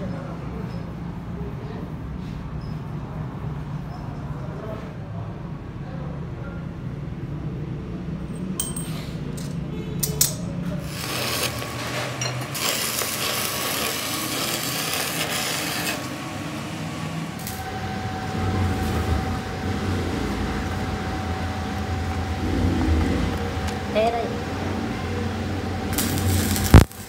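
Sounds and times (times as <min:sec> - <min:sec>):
welding arc crackling and hissing: 0:10.7 - 0:27.0
steady hum with faint whine: 0:16.1 - 0:27.0.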